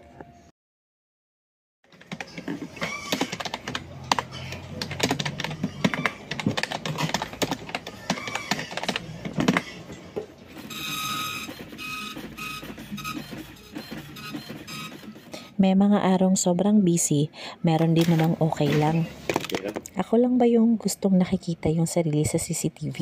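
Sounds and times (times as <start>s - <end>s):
keyboard typing: 1.9s - 9.8s, 10.5s - 15.5s
dot-matrix printer printing: 2.0s - 15.6s.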